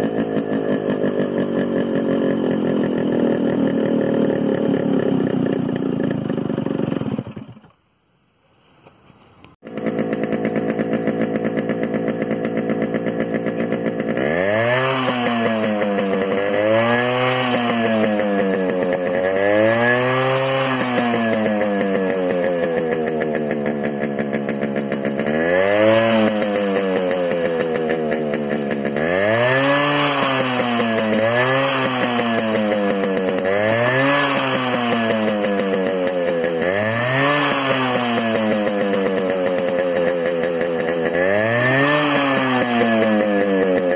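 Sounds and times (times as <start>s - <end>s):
two-stroke motorcycle engine revving: 0.0s - 7.8s, 9.5s - 43.9s.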